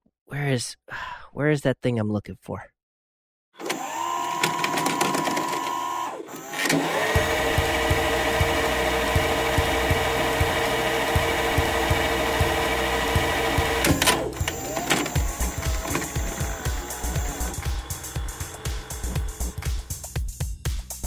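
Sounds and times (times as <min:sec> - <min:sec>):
sliding synthesizer chord: 0:07.0 - 0:19.8
steady bass beat: 0:07.2 - 0:13.8, 0:15.2 - 0:21.0.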